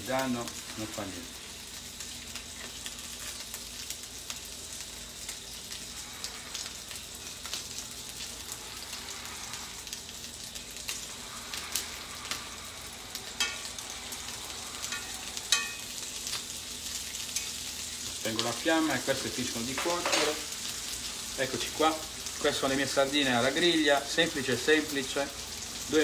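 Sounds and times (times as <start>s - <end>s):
fish sizzling in a skillet: 0.0s - 26.0s
metal utensil scraping a pan: 14.9s - 15.9s.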